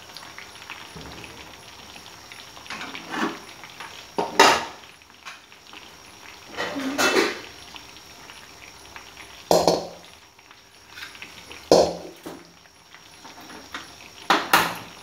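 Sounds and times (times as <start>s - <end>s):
food deep-frying in hot oil: 0.0s - 15.0s
pots and pans clattering: 0.9s - 5.4s, 6.5s - 7.5s, 9.5s - 10.0s, 10.9s - 12.5s, 13.2s - 15.0s.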